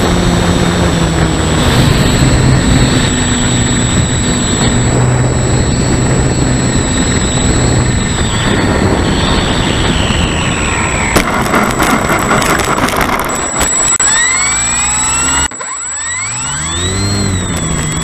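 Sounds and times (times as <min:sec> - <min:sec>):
wind rushing over microphone: 0:00.0 - 0:15.6
electric motor whine: 0:00.0 - 0:18.0
rattling and bumping over grass: 0:11.2 - 0:13.7.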